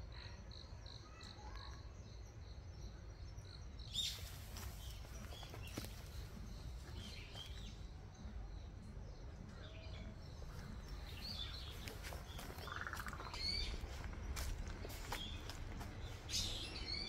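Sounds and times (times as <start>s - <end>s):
birds chirping: 0.2s - 17.0s
bird trill: 9.5s - 14.1s.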